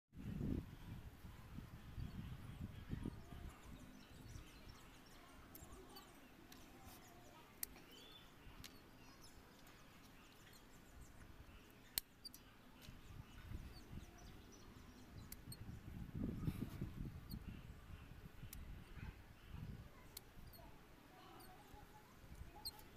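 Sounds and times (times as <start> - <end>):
distant bird chirps: 1.9 - 22.9
sharp clicks: 5.0 - 6.8, 7.6 - 10.6, 11.2 - 13.8, 14.8 - 15.6, 20.1 - 20.6.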